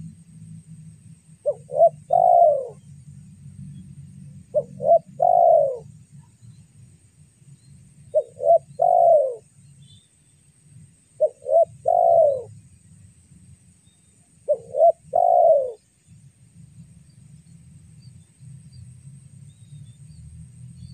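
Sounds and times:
dove cooing: 1.4 - 2.8, 4.5 - 5.9, 8.1 - 9.5, 11.2 - 12.5, 14.5 - 15.8.

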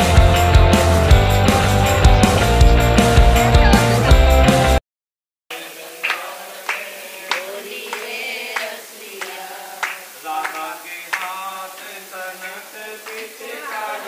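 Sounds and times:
women singing a chant: 5.8 - 10.5, 13.1 - 14.0
hands clapping in time: 6.0 - 12.0, 13.0 - 13.4.

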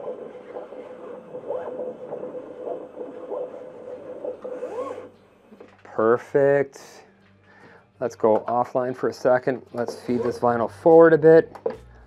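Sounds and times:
plotter motors whining: 0.0 - 5.2.

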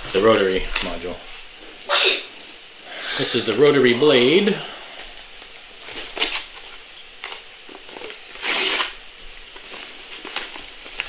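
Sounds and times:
packaging rustling and crinkling: 4.9 - 11.0.

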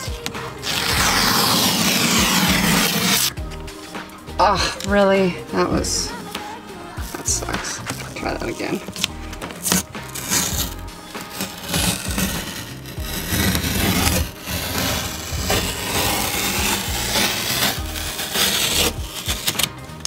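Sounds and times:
tape peeling off wall: 0.0 - 3.4, 7.8 - 19.8.

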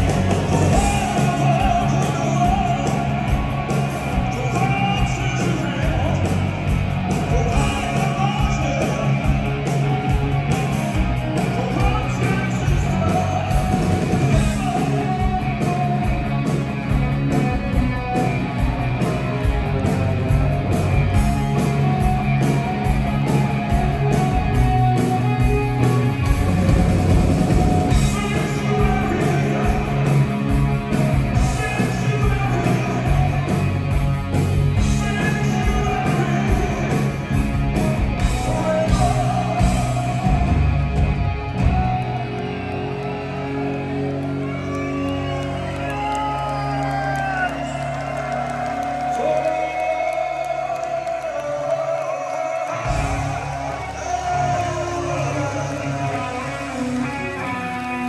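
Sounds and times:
bass guitar: 0.0 - 51.9, 52.6 - 58.0
drums: 0.0 - 58.0
electric guitars: 0.0 - 58.0
man singing lead vocals: 0.1 - 16.7, 27.8 - 34.0, 34.7 - 41.8, 49.2 - 57.8.

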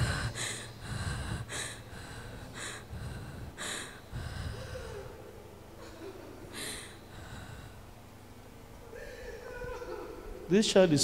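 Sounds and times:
short gasping breaths: 0.0 - 5.2, 6.5 - 7.8
girl crying: 8.8 - 10.4.

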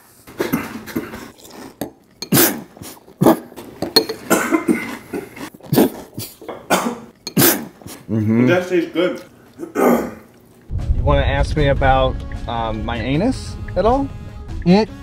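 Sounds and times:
cutlery clinking against dishes: 3.8 - 4.4.

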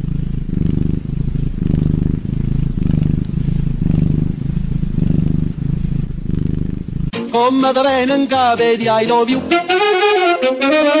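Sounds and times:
cougar purring: 0.0 - 7.2.

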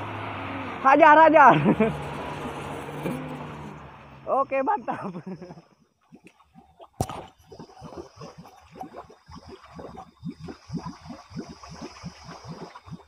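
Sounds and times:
muddy water gurgling: 4.3 - 13.0.

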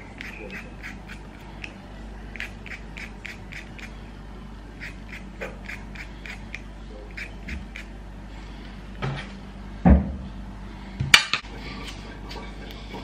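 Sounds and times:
peeler scraping potato skin: 0.1 - 3.9, 4.8 - 7.9.

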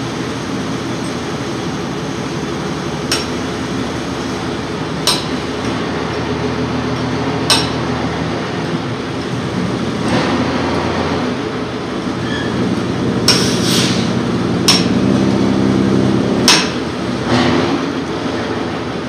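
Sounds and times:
low machine hum: 0.0 - 19.0
metal tool striking brake: 3.1 - 3.4, 5.0 - 5.4, 7.5 - 7.9, 13.3 - 13.6, 14.7 - 15.0.

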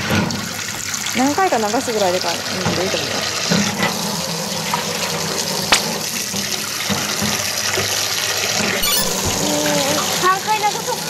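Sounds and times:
tap water running into a pot: 0.0 - 8.6.

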